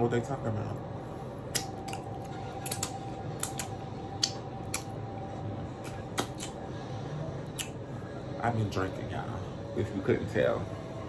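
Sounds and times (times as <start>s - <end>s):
faint steady hum: 0.0s - 11.0s
wet lip smacks: 1.5s - 5.0s, 5.8s - 6.6s, 7.5s - 7.8s.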